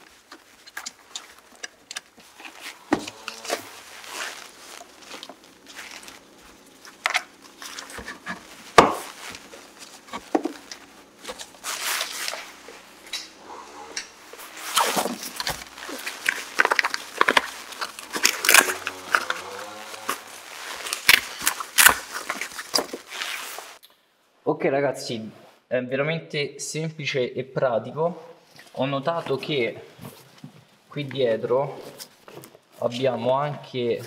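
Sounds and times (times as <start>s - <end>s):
fabric rustling and swishing: 2.2s - 13.1s, 14.2s - 18.0s, 18.8s - 23.8s.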